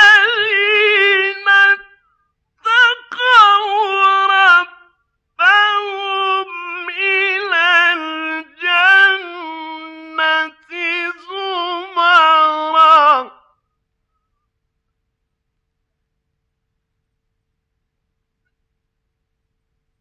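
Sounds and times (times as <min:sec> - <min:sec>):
man chanting recitation: 0:00.0 - 0:02.0, 0:02.6 - 0:13.5.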